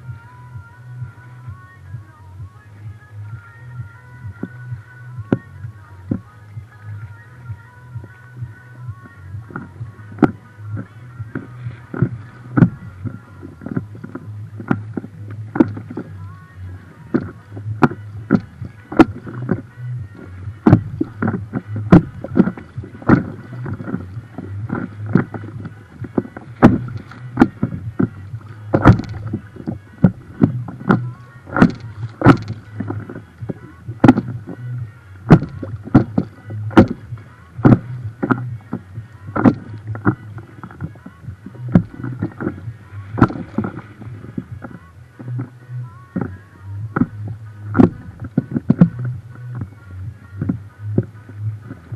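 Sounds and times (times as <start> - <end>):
steady low hum: 0.0 - 51.9
water slapping boat hull: 0.0 - 51.9.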